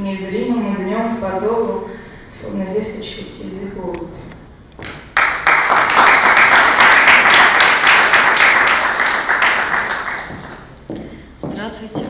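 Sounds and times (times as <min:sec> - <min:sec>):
audience applause: 0:05.2 - 0:10.7.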